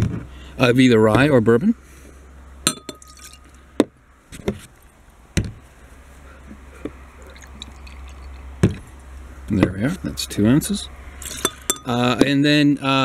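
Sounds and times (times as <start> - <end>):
glass and bottles clinking on table: 2.7 - 3.5, 11.2 - 12.2.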